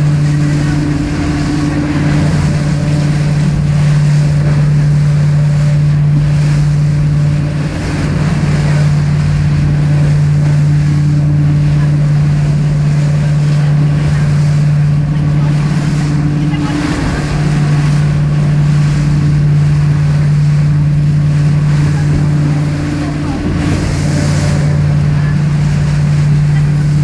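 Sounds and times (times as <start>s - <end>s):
motorboat engine running: 0.0s - 27.0s
water rushing: 0.0s - 27.0s
wind on microphone: 0.0s - 27.0s.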